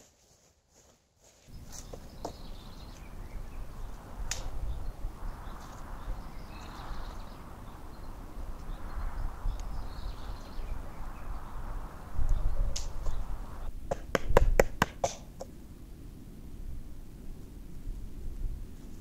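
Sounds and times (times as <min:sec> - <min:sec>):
footsteps in dry leaves: 0:00.0 - 0:04.0
leaves rustling: 0:00.0 - 0:13.9, 0:15.2 - 0:19.0.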